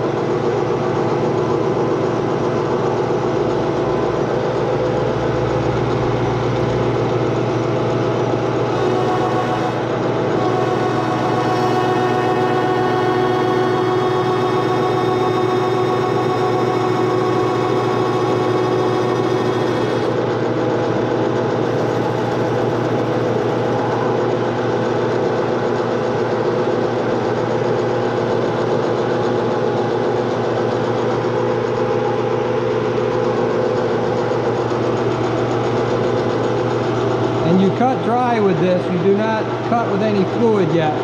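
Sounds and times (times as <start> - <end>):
metal lathe motor and gearbox hum: 0.0 - 41.0
thin high whine: 4.1 - 20.1.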